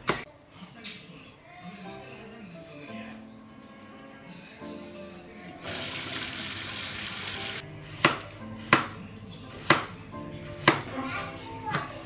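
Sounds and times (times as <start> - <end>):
knife chopping on cutting board: 8.0 - 9.9, 10.6 - 10.9.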